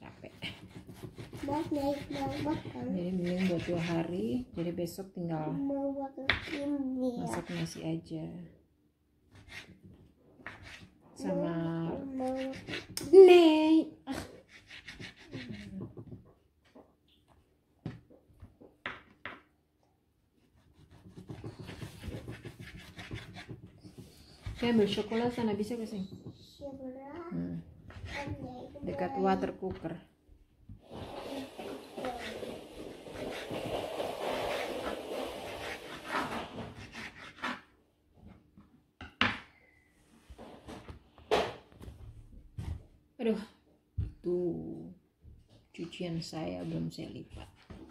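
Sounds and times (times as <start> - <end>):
knife chopping on wooden board: 0.5 - 3.9, 20.7 - 25.5.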